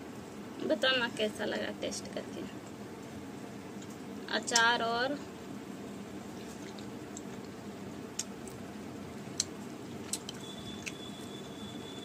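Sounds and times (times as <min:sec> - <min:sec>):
low background hum: 0:00.0 - 0:12.0
eating clicks: 0:06.6 - 0:08.6, 0:09.3 - 0:11.0.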